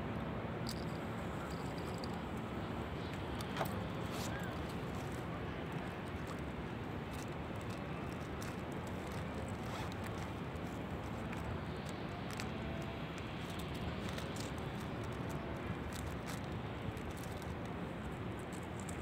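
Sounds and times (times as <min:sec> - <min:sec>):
distant city traffic hum: 0:00.0 - 0:19.0.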